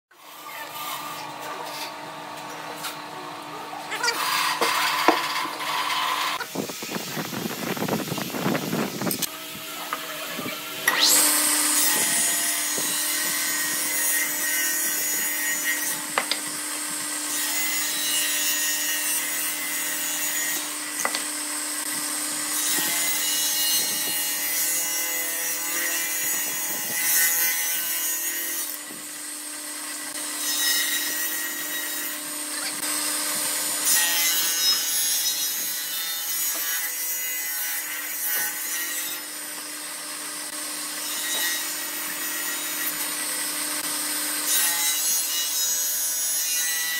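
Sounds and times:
saw blade cutting wood: 0.1 - 46.9
table saw motor running: 0.2 - 46.9.

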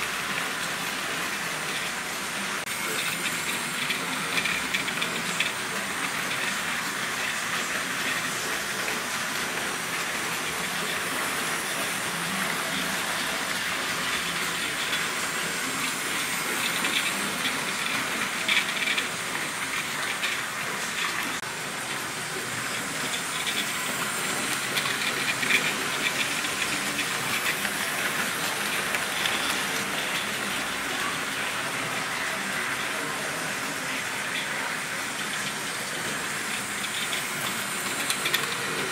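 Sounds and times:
model train motors whirring: 0.0 - 38.9.

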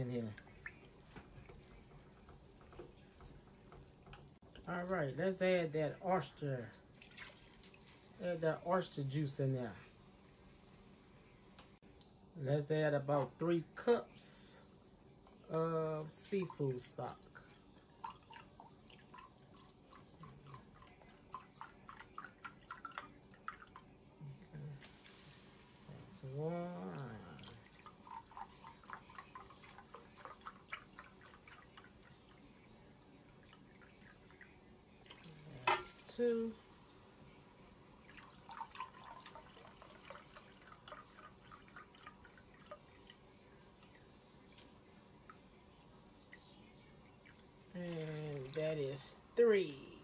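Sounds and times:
liquid dripping and splashing: 0.1 - 4.7, 6.6 - 8.2, 17.3 - 25.5, 26.8 - 36.4, 37.8 - 49.2.

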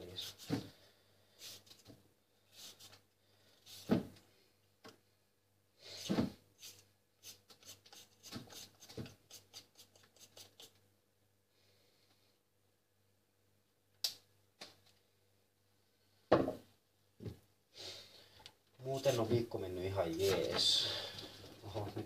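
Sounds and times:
carrot peeling strokes: 0.1 - 0.6, 1.4 - 1.9, 2.5 - 3.0, 5.9 - 10.8.

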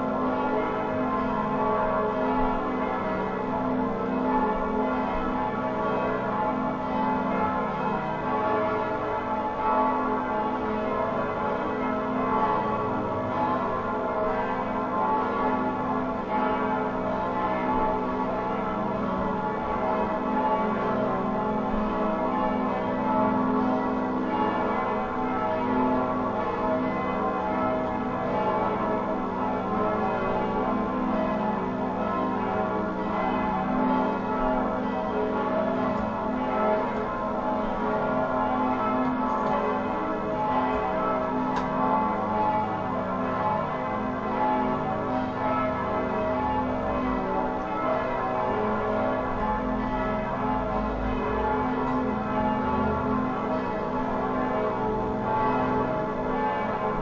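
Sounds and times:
bells ringing: 0.0 - 57.0.

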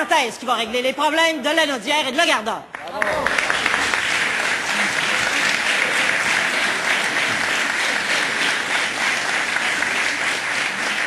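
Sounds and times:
crowd clapping: 2.7 - 11.0.

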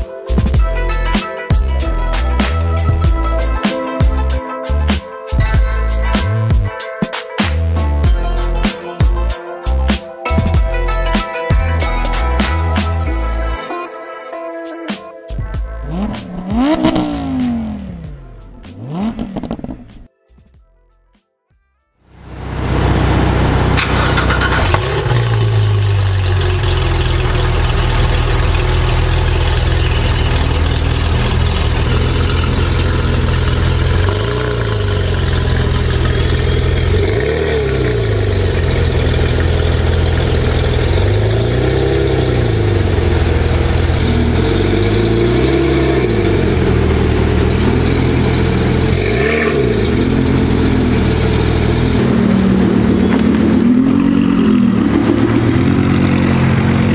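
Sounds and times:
sports car engine idling and revving: 15.4 - 20.1, 22.1 - 56.9.

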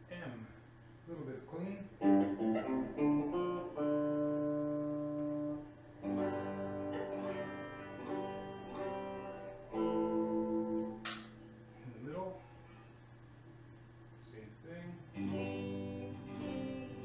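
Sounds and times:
clean electric guitar chords: 2.0 - 11.8, 15.0 - 17.0.

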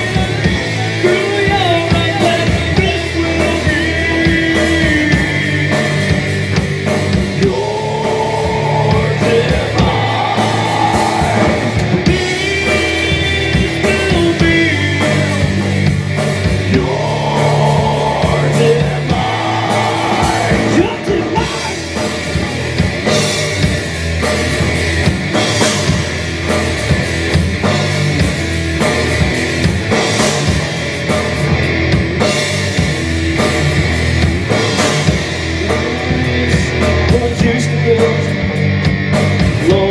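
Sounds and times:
person singing: 0.0 - 6.3, 7.3 - 15.9, 16.6 - 22.8, 35.4 - 38.5, 39.6 - 39.9
bass guitar: 0.0 - 39.9
distorted electric guitar: 0.0 - 39.9
drum kit: 0.0 - 39.9.

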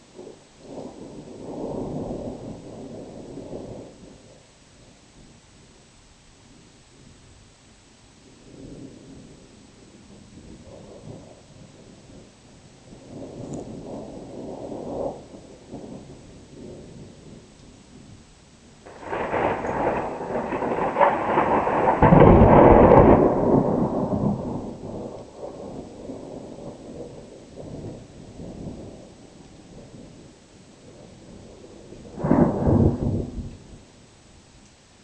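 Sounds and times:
thunder rumbling: 0.0 - 4.4, 8.4 - 34.2
loud thunder peal: 18.8 - 29.1, 31.0 - 33.8.

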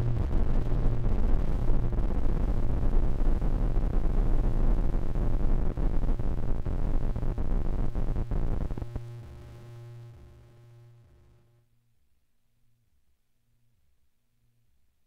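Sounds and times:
synthesizer drone: 0.0 - 2.6
low pulsing bass: 0.0 - 10.0
distorted noise music: 0.0 - 11.4.

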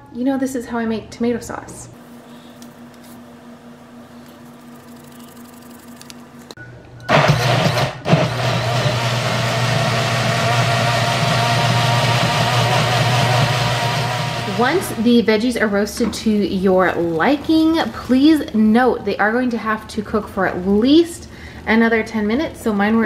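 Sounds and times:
blender motor running: 7.1 - 15.0.

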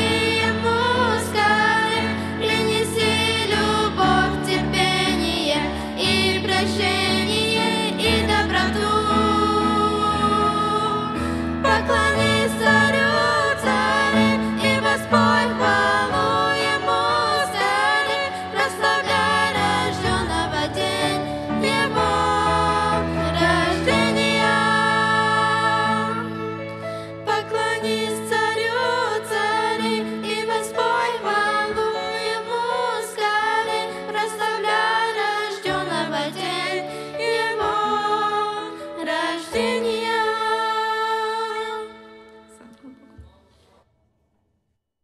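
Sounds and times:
female voices singing a hymn: 0.0 - 26.4, 27.1 - 43.3
piano accompaniment: 0.0 - 43.5.

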